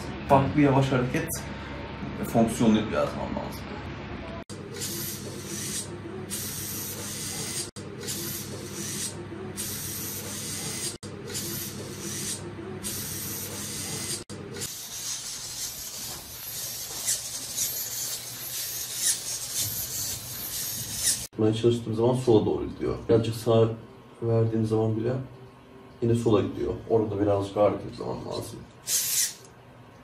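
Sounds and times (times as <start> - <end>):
servo motors buzzing and whirring: 4.7 - 21.3, 28.9 - 29.4.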